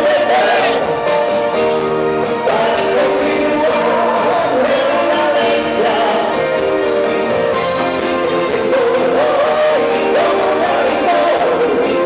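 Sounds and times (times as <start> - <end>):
loud music with singing: 0.0 - 12.0.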